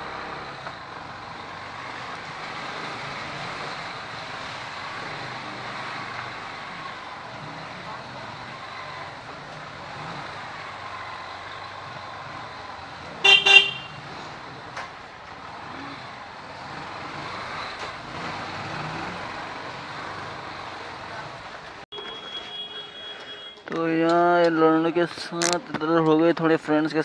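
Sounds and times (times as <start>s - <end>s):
street traffic noise: 0.0s - 27.0s
vehicle horn honk: 13.2s - 14.0s, 21.9s - 23.6s.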